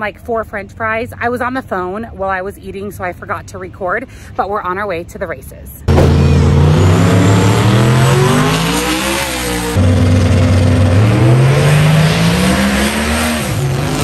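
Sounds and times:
racing car engines accelerating: 5.9s - 14.0s.

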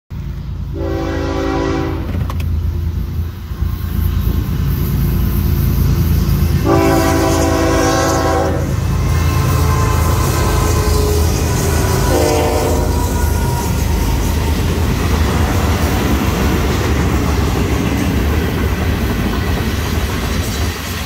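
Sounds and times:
diesel engines rumbling: 0.1s - 20.9s
train horn blasts: 0.7s - 2.3s, 6.6s - 14.6s.

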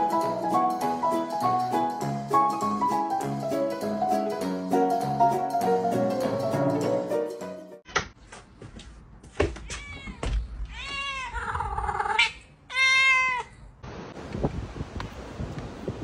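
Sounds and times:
cat meowing: 9.6s - 13.6s.

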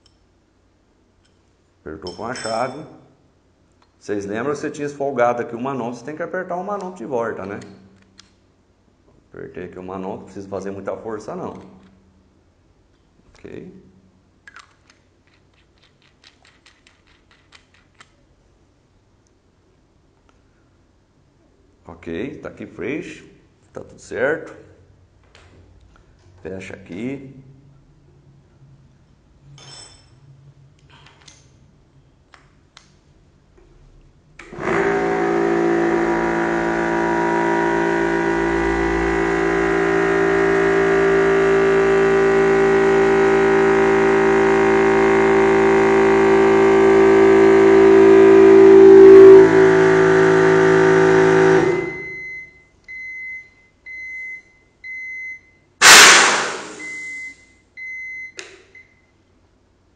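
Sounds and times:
air compressor running: 34.4s - 52.4s, 55.8s - 57.3s
short electronic beeps: 56.6s - 59.0s.

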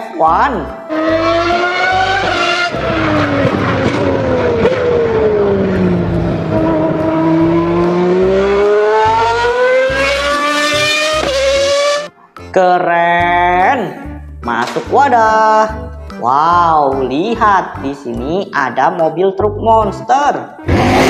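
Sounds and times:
racing car engine at high revs: 0.9s - 12.1s, 20.7s - 21.0s.

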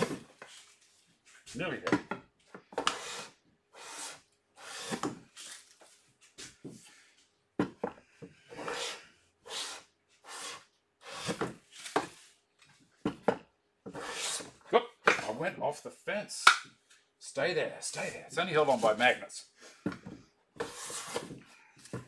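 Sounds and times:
hand plane shaving wood: 2.8s - 5.1s, 8.5s - 11.4s, 13.9s - 14.5s, 20.6s - 21.3s.

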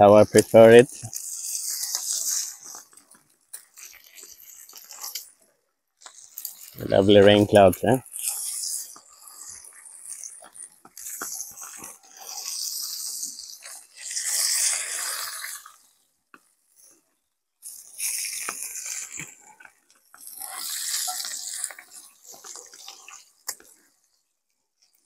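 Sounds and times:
food sizzling on grill: 0.1s - 2.8s, 6.4s - 15.7s, 20.2s - 23.6s.

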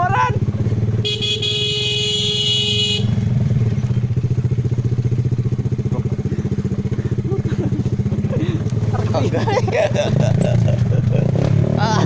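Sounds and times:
motorcycle engine running: 0.0s - 12.0s
horn honking: 1.0s - 3.4s.

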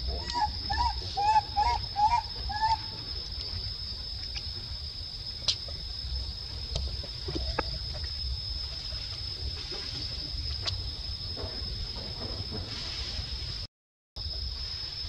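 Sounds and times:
insects buzzing: 0.0s - 15.0s
baby monkey cooing: 0.1s - 2.9s.

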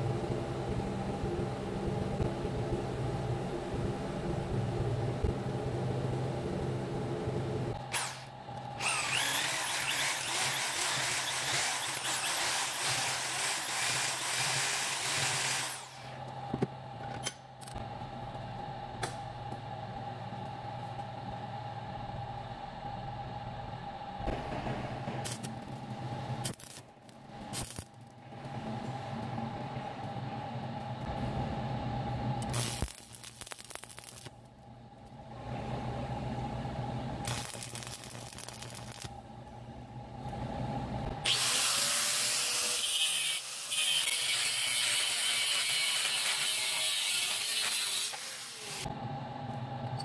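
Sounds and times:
mechanical hum: 0.0s - 50.0s
electric drill boring steel: 7.9s - 16.1s, 41.2s - 48.9s.

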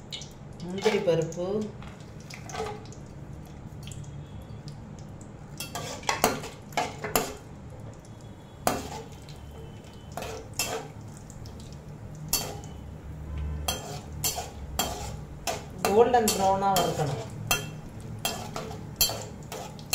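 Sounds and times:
nuts frying in oil: 0.0s - 19.9s
metal spatula scraping a pan: 5.6s - 7.4s, 8.6s - 9.2s, 10.2s - 11.0s, 12.3s - 12.8s, 13.6s - 19.9s.

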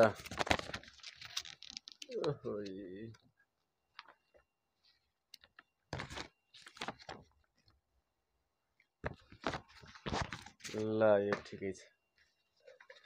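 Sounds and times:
paper packaging crinkling: 0.0s - 2.4s, 6.0s - 7.3s.

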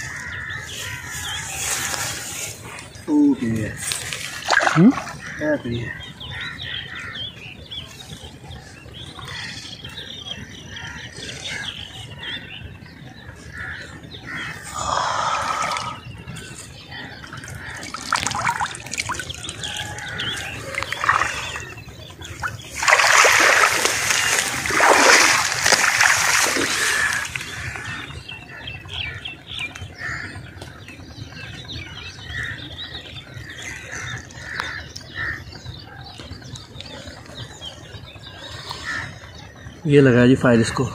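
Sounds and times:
splashing in shallow water: 4.0s - 5.3s, 17.6s - 28.0s.

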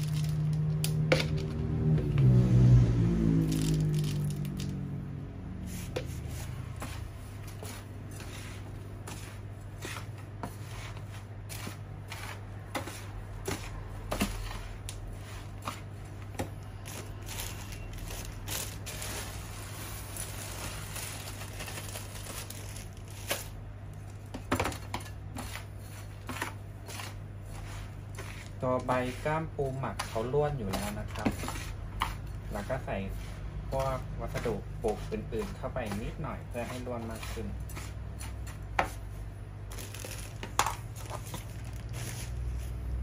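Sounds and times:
trowel scraping gritty soil: 5.6s - 15.9s, 25.4s - 39.0s.

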